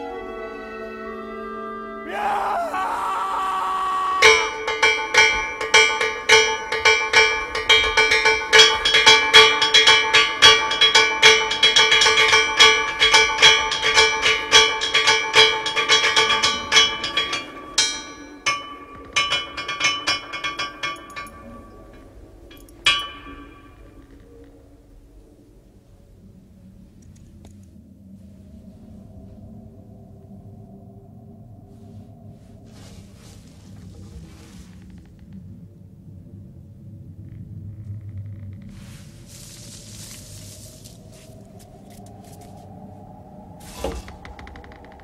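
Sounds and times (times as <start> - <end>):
ringing metal strikes: 4.2 - 24.7.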